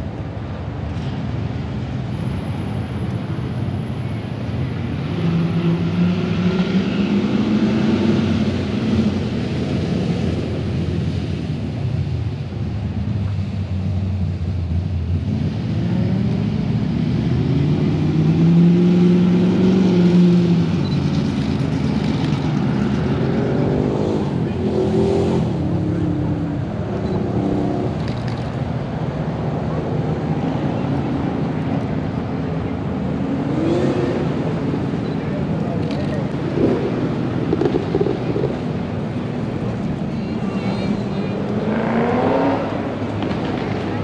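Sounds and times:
cars driving past: 0:00.0 - 0:44.0
low rumble of traffic: 0:00.0 - 0:44.0.

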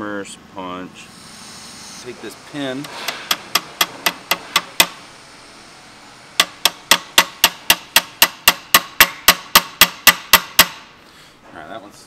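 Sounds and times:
hammer tapping steel pin: 0:06.4 - 0:10.8.

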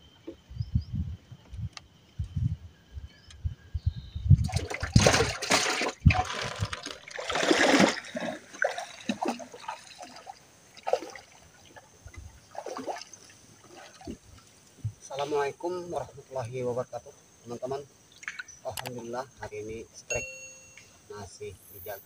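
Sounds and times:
water splashing around boat: 0:04.4 - 0:15.1.

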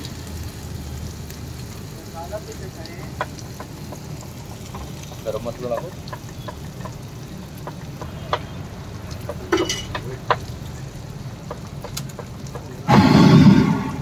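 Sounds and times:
spices sizzling in oil: 0:00.0 - 0:14.0
sharp pops and clicks: 0:03.0 - 0:13.8
loud burst of noise: 0:12.9 - 0:14.0.

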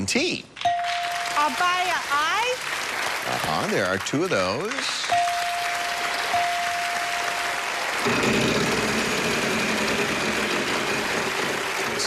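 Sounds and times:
electronic chime tones: 0:00.7 - 0:01.8, 0:05.1 - 0:08.1
audience applause: 0:00.9 - 0:12.0.

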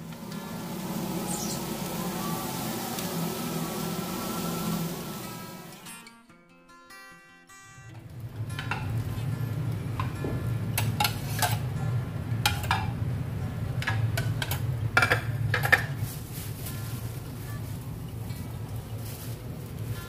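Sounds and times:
steady low hum: 0:00.0 - 0:05.9, 0:07.9 - 0:20.0
metal tongs clicking on pan: 0:12.4 - 0:12.9.

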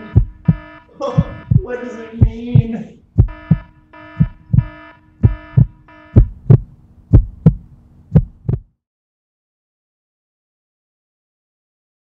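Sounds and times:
heartbeat thumps: 0:00.0 - 0:08.8.

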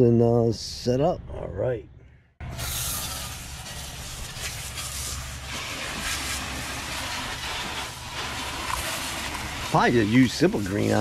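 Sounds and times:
garden hose spraying water: 0:02.4 - 0:11.0.

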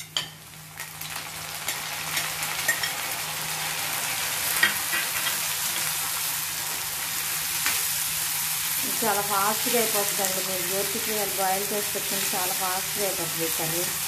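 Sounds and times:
food sizzling in oil: 0:00.0 - 0:14.0
metal spoon clinking on pan: 0:01.7 - 0:03.0.

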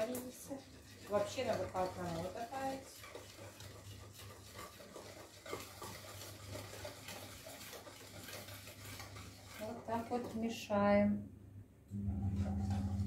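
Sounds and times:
wire whisk scraping a bowl: 0:00.0 - 0:10.7
steady low hum: 0:10.9 - 0:13.0.

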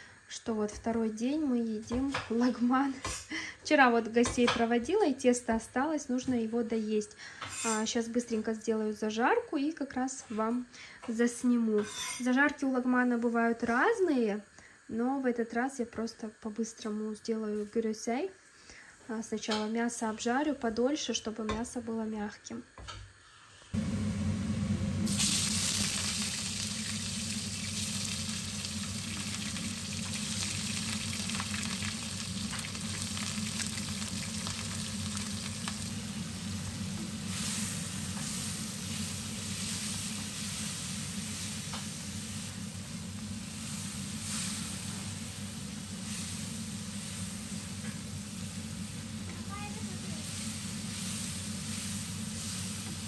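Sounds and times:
low steady hum: 0:23.8 - 0:53.0
meat sizzling in hot oil: 0:23.8 - 0:53.0.

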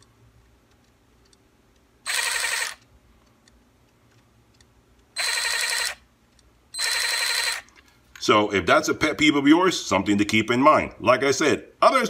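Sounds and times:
cordless ratchet whirring: 0:02.1 - 0:02.8, 0:05.2 - 0:06.0, 0:06.8 - 0:07.7.

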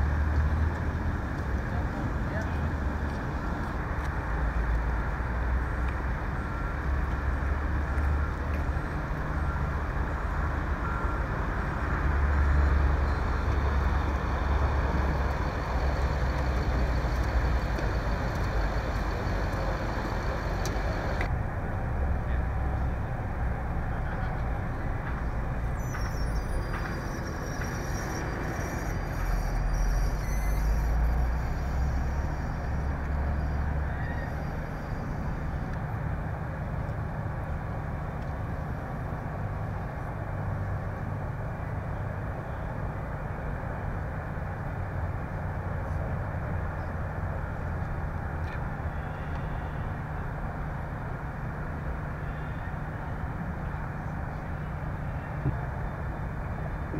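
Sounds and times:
engine idling rumble: 0:00.0 - 0:43.1
street noise: 0:00.0 - 0:56.9.

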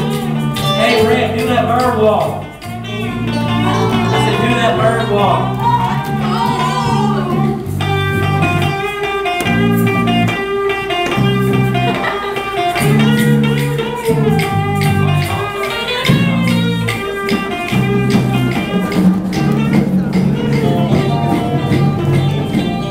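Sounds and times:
repeating bass line: 0:00.0 - 0:08.8, 0:09.4 - 0:10.5, 0:17.7 - 0:22.9
band playing blues: 0:00.0 - 0:22.9
guitar: 0:00.0 - 0:22.9.

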